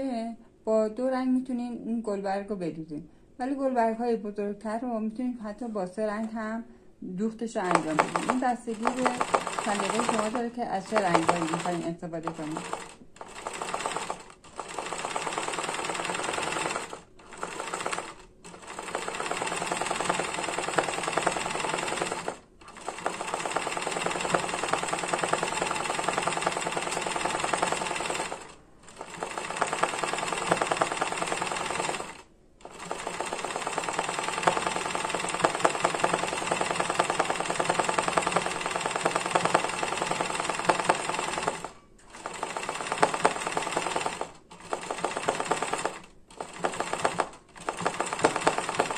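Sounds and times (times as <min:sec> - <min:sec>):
sewing machine running: 0:07.6 - 0:48.9.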